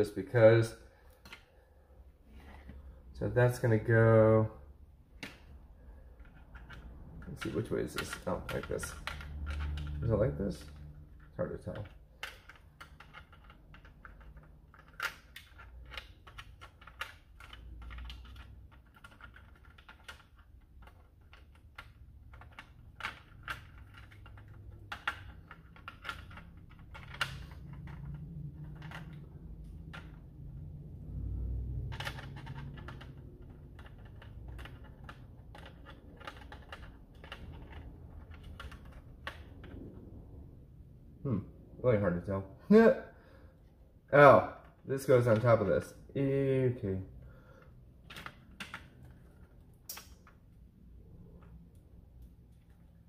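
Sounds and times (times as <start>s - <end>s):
plastic parts clicking: 31.8s - 39.8s.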